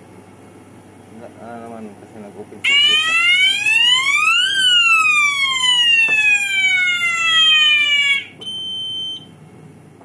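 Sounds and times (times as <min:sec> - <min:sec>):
fire alarm siren sweeping tone: 0:02.7 - 0:09.3
high beep: 0:08.4 - 0:09.3.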